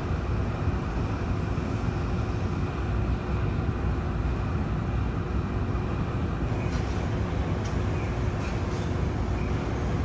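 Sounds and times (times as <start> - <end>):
faint constant hum: 0.0 - 10.0
traffic rumble: 0.0 - 10.0
construction machinery: 6.5 - 10.0.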